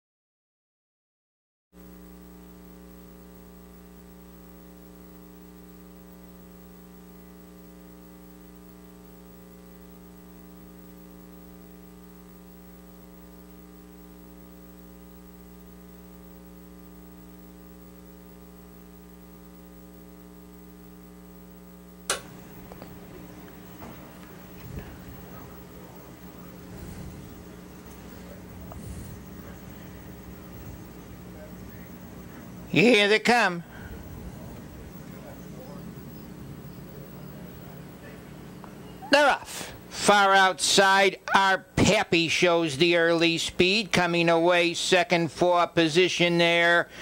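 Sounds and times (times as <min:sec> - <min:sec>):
electrical mains hum: 0:01.8 - 0:47.0
faint background noise: 0:02.0 - 0:47.0
sharp click: 0:22.1 - 0:22.3.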